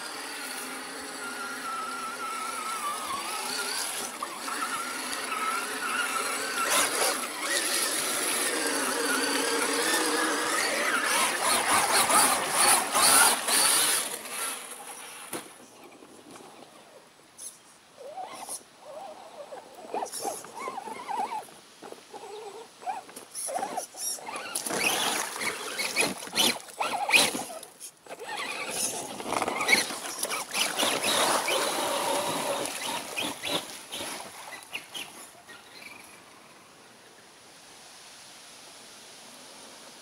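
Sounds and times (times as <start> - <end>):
toy truck motor running: 0.0 - 15.4, 19.8 - 36.0
tyres spinning in mud: 24.3 - 27.6, 28.2 - 35.2.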